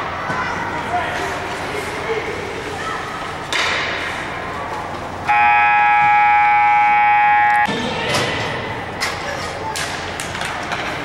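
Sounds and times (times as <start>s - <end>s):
rink background noise: 0.0s - 11.0s
arena horn blast: 5.3s - 7.7s.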